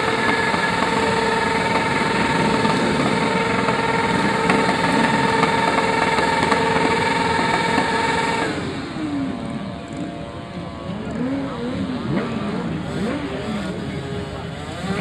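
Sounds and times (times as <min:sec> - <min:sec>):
motorcycle engine at high revs: 0:00.0 - 0:15.0
tire spinning on tarmac: 0:00.0 - 0:15.0.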